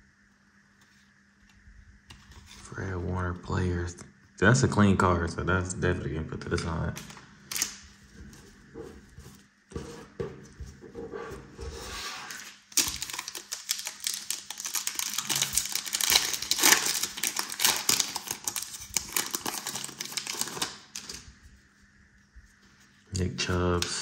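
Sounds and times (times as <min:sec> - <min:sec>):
foil wrapper crinkling: 0:07.0 - 0:08.0, 0:12.4 - 0:21.3.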